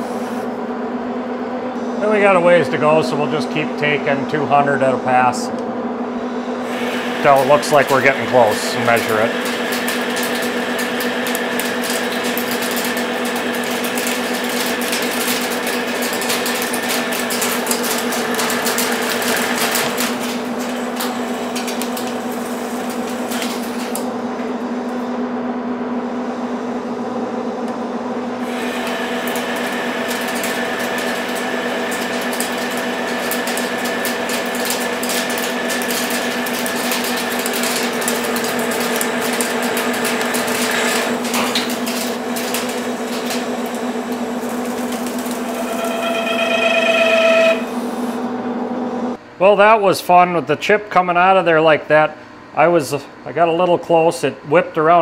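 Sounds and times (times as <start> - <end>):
lathe gear hum and whine: 0.0 - 49.4
crackle of metal cutting: 6.6 - 24.1, 28.4 - 47.7.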